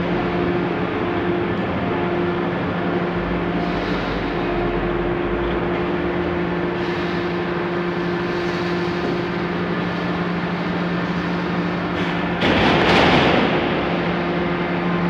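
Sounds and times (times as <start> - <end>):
low motor tones: 0.0 - 15.0
machine hum: 0.0 - 15.0
sudden loud burst of noise: 12.1 - 15.0.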